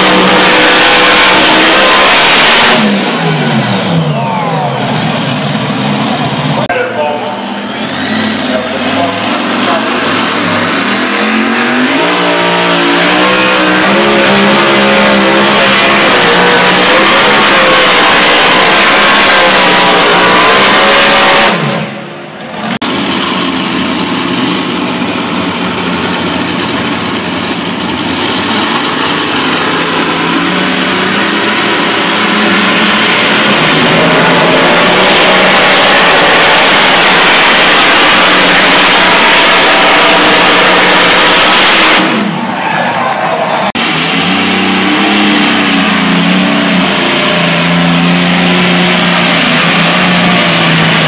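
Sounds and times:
tractor engine running flat out: 13.6s - 42.4s.

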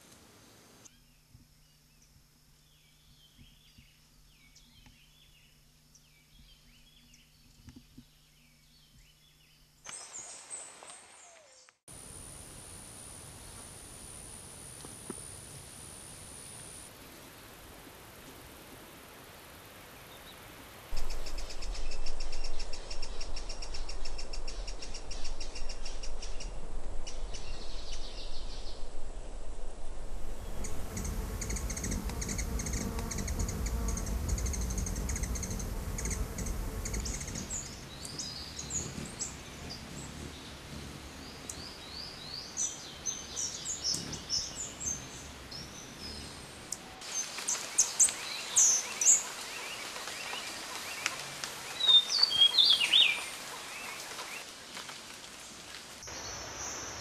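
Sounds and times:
background hiss: 0.0s - 57.0s
low rumble: 21.0s - 39.8s
hummingbird calls: 30.4s - 42.5s.

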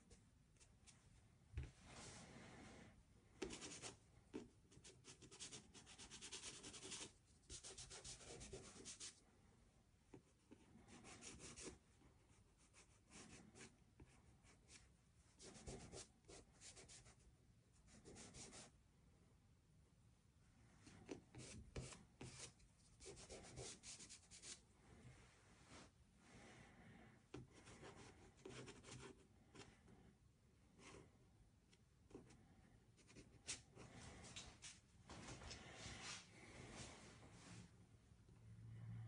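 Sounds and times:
pastel stick scratching paper: 3.4s - 9.2s.

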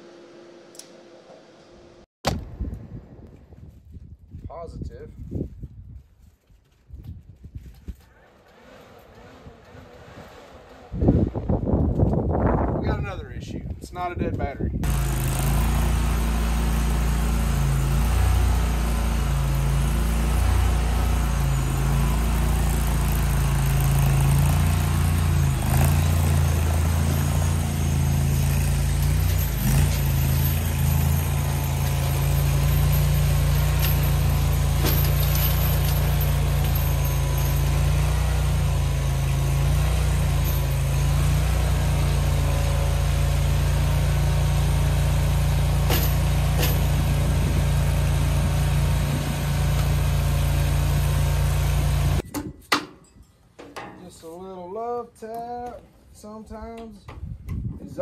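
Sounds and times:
skid steer engine running: 14.8s - 52.2s.

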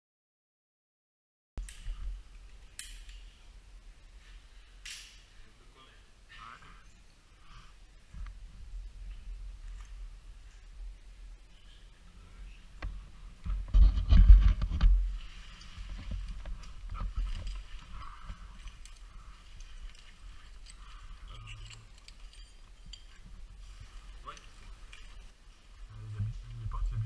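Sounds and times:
low rumble of handling noise: 8.0s - 27.0s
metal hardware clinking: 16.6s - 23.4s.

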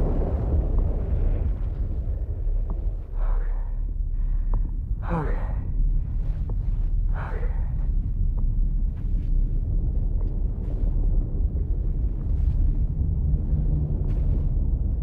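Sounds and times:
deep low rumble: 0.0s - 15.0s
man breathing heavily: 3.1s - 6.4s, 7.0s - 8.1s.

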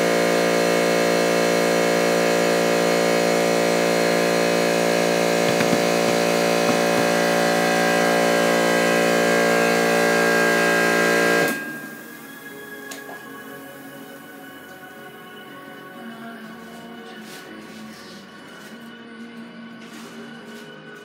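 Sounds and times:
workshop motor humming: 0.6s - 12.2s
faint knocks: 5.5s - 7.4s.

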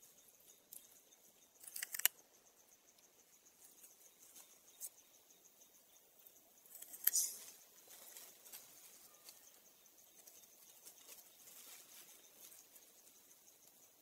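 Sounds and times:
high insect hum: 0.0s - 14.0s
crackling rustles: 1.6s - 2.2s, 6.7s - 13.9s.

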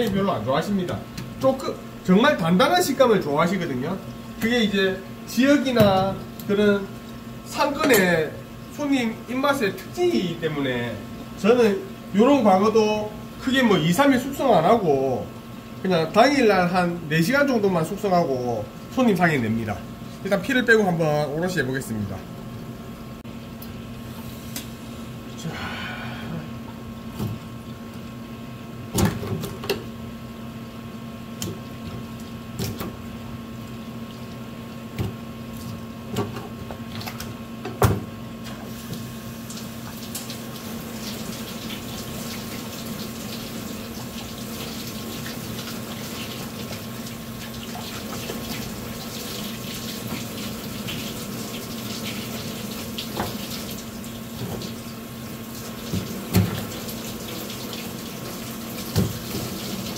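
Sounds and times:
steady low hum: 0.0s - 41.6s
hose water running into sink: 38.6s - 59.9s.

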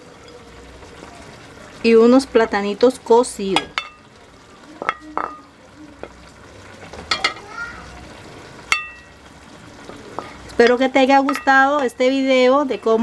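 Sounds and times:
low kitchen hiss: 0.0s - 13.0s
spoon clinking against pot: 3.6s - 4.1s, 4.8s - 5.5s, 7.1s - 7.4s, 8.7s - 9.1s, 10.2s - 11.9s.

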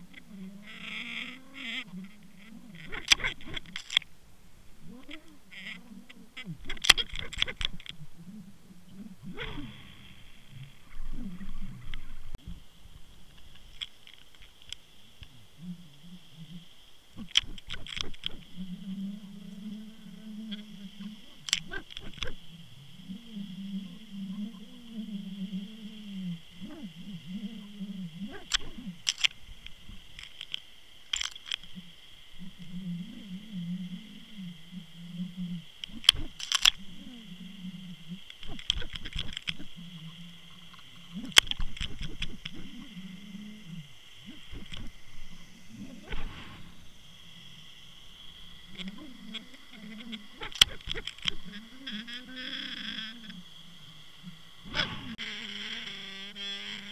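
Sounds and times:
underwater low hum: 0.0s - 56.9s.

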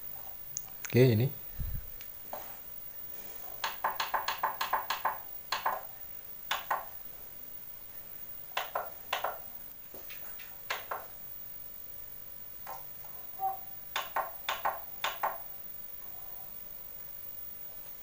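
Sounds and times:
push buttons clicking: 3.6s - 5.8s.

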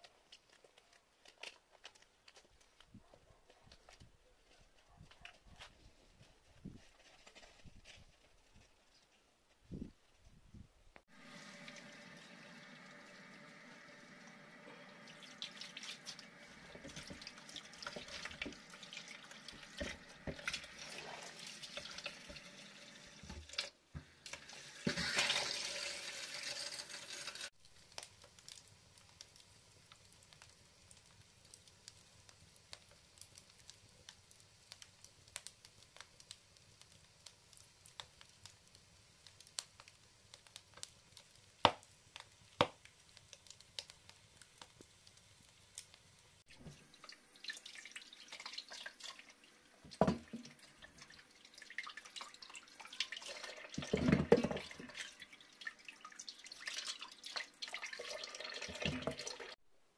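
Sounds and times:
logs crackling in wood stove: 11.0s - 59.5s
tap water running: 11.1s - 27.5s, 46.5s - 59.6s
hands scrubbing potatoes: 14.7s - 22.6s
sharp fire pops: 27.6s - 46.0s.

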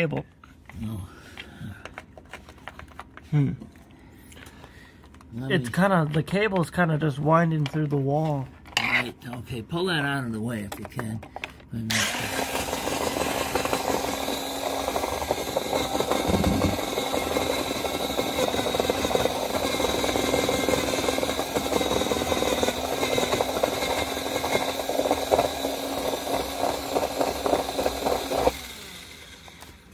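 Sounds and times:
electric drill motor whining: 11.9s - 29.9s.

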